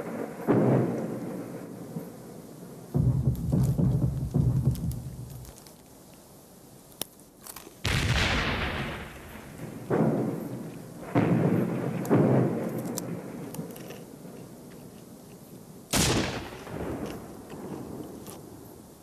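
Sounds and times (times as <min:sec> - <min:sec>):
heavy explosions: 0:02.9 - 0:05.6, 0:07.9 - 0:13.3, 0:16.0 - 0:17.4.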